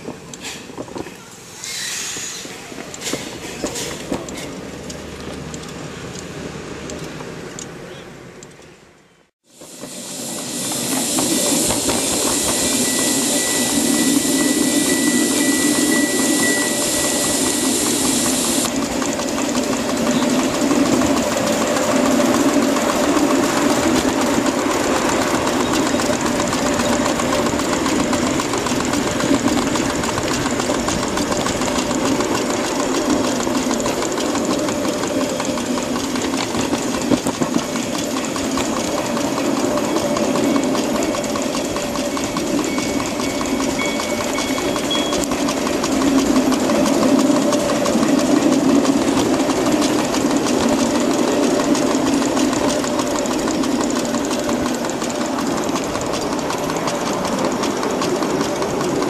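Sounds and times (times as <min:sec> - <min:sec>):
train rumbling on rails: 0:00.0 - 0:59.0
high hiss: 0:09.4 - 0:18.8
steam locomotive beat: 0:09.4 - 0:59.0.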